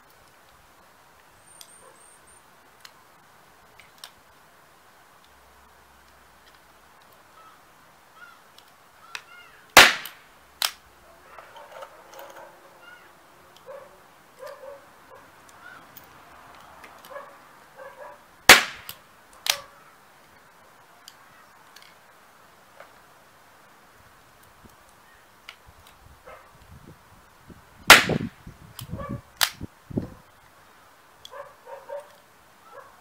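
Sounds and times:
smaller sharp crack: 0:09.1 - 0:10.8, 0:18.5 - 0:19.7, 0:27.9 - 0:29.6
nail gun firing bang: 0:09.8 - 0:10.7, 0:18.5 - 0:19.0, 0:27.9 - 0:28.3.

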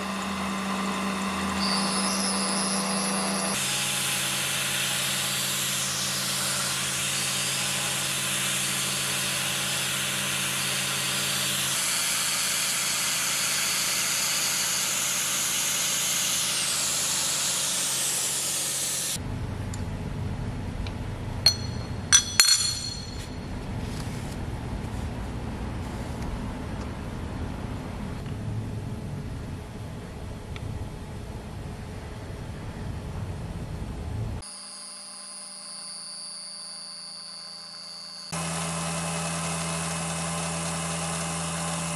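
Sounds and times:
milling machine cutting metal: 0:00.0 - 0:19.2, 0:34.4 - 0:41.9
sharp metallic clinks: 0:21.5 - 0:23.5.

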